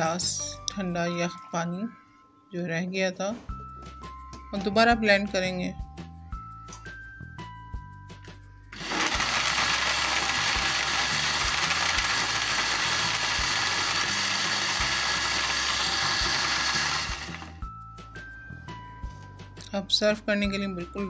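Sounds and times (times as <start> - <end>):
electric blender running: 8.7 - 17.6.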